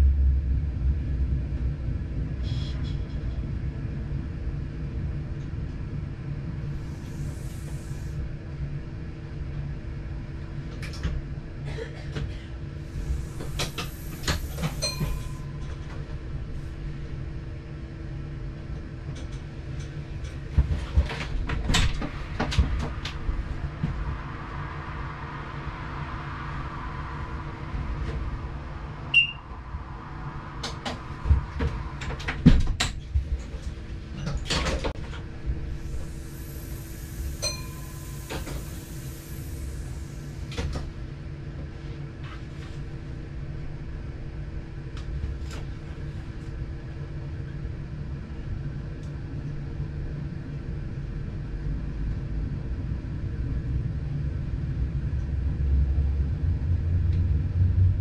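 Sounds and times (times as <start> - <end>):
train rumble: 0.0 - 58.0
hiss: 6.7 - 8.2, 12.9 - 15.2, 35.7 - 40.6.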